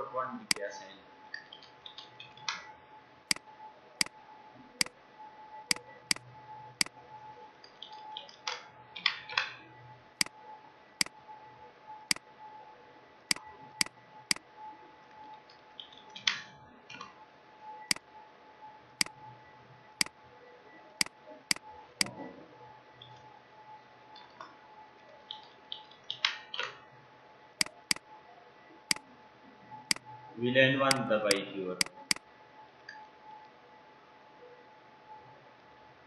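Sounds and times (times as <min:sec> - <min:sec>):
mouse and keyboard clicks: 0:27.6 - 0:28.0, 0:30.9 - 0:32.2.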